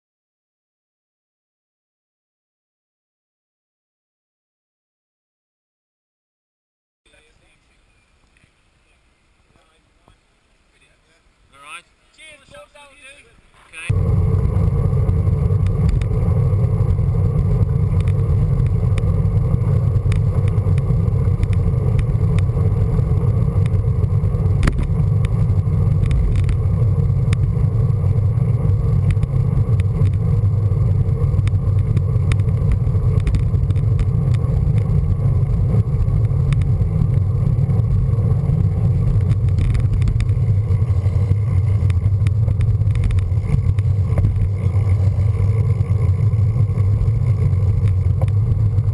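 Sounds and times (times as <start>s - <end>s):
tyre and road noise: 13.7s - 48.9s
wind buffeting microphone: 13.9s - 48.9s.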